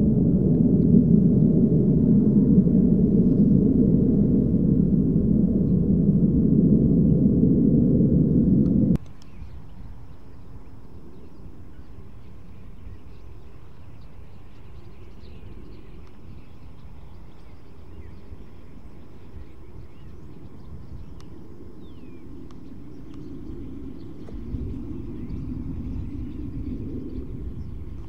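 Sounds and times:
low outdoor rumble: 0:00.0 - 0:09.0
jet rumble: 0:00.0 - 0:10.1, 0:15.3 - 0:28.0
faint bird chirps: 0:09.1 - 0:28.0.

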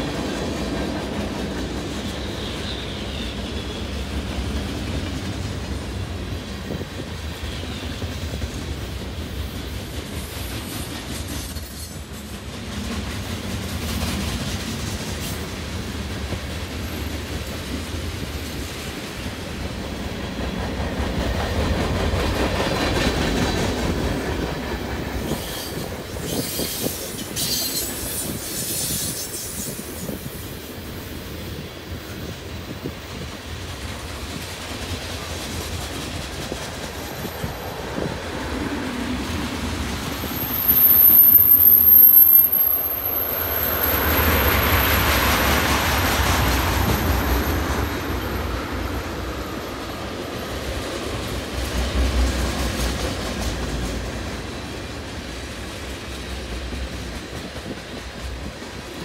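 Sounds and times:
train wheels rumbling on rails: 0:00.0 - 0:59.0
high thin wheel squeal: 0:25.2 - 0:30.2, 0:40.2 - 0:45.1.

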